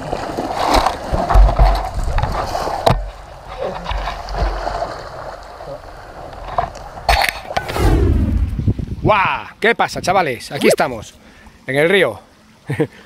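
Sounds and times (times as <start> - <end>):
river water sloshing and splashing: 0.0 - 7.7.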